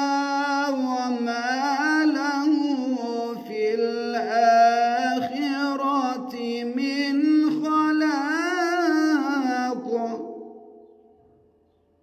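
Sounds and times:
man chanting melodically: 0:00.0 - 0:11.0.

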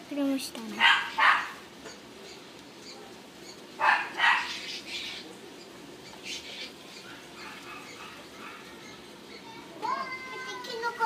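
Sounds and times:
dog barking: 0:00.8 - 0:01.6, 0:03.8 - 0:04.6, 0:07.1 - 0:08.7.

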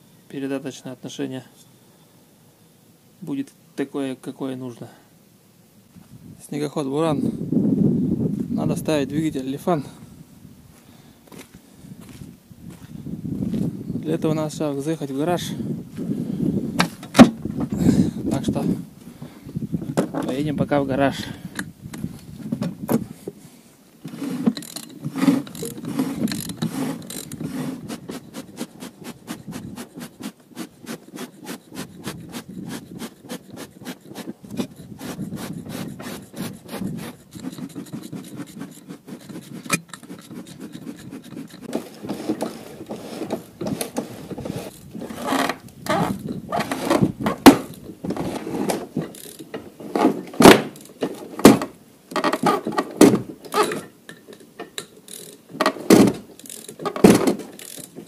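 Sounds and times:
wooden planks knocking and creaking: 0:40.8 - 0:53.9, 0:55.5 - 0:58.0.

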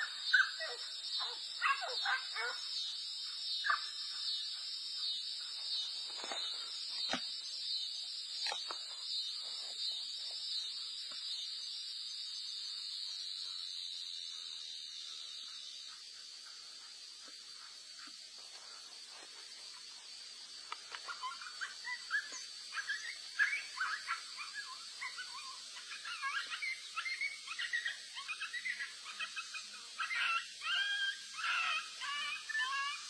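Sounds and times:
dogs yelping and barking: 0:00.0 - 0:02.8, 0:03.6 - 0:04.0, 0:20.8 - 0:33.0.

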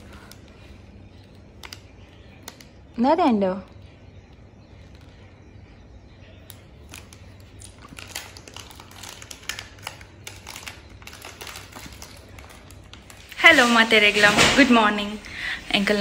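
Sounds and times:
plastic wrapper crinkling: 0:00.0 - 0:03.0, 0:06.5 - 0:16.0.

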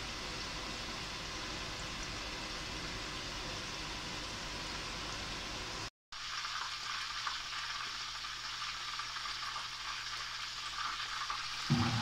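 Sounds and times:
faint appliance hum: 0:00.0 - 0:12.0
soup sizzling hiss: 0:00.0 - 0:12.0
low rushing noise: 0:11.7 - 0:12.0.

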